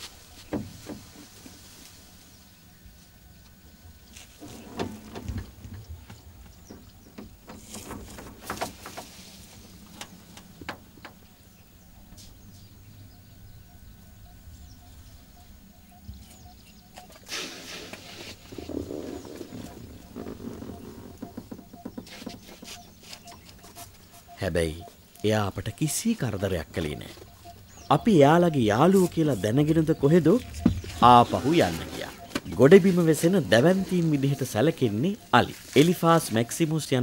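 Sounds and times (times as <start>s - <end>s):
elephant knocking against vehicle: 0.5s - 1.6s, 4.4s - 9.2s, 19.4s - 23.4s, 30.4s - 31.2s
steady low hum: 9.1s - 17.1s.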